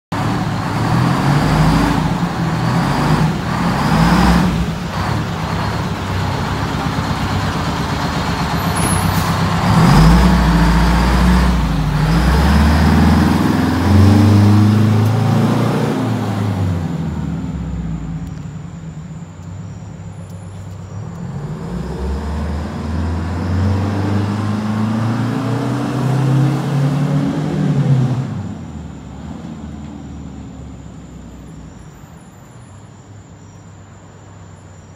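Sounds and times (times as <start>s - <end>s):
fire engine accelerating away: 0.1s - 32.6s.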